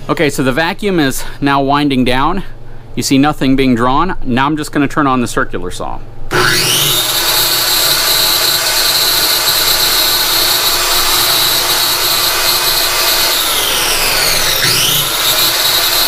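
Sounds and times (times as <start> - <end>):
circular saw whining: 6.3 - 16.0.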